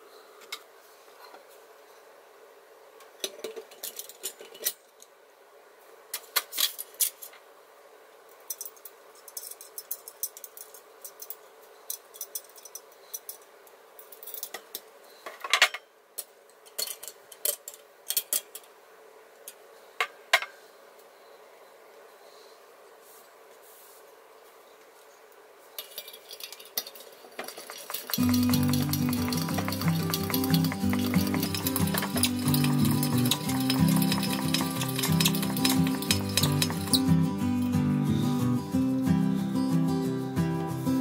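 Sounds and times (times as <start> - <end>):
metal parts clattering: 25.8 - 37.0
small metal parts clinking: 25.8 - 37.3.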